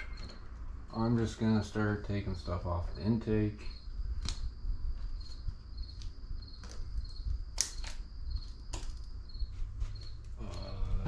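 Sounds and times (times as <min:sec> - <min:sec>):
sharp clicks and knocks of parts: 0:04.2 - 0:04.5, 0:05.9 - 0:09.2.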